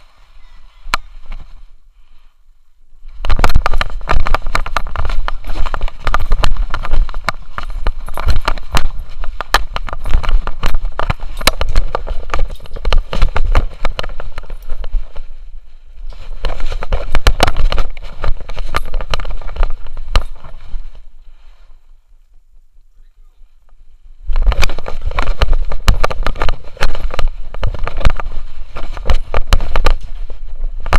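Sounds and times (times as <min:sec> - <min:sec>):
camera knocking and rattling: 0:03.2 - 0:15.3, 0:16.1 - 0:20.8, 0:24.3 - 0:30.9.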